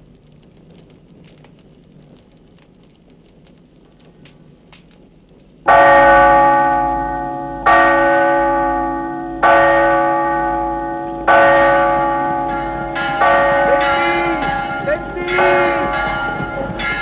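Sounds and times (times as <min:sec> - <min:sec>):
church bell tolling: 0:05.7 - 0:17.0.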